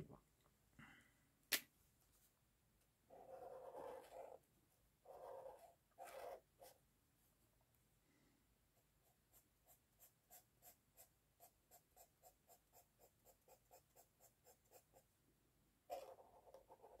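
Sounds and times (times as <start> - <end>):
felt-tip pen scratching on paper: 3.1 - 4.4, 5.1 - 6.8, 15.9 - 17.0.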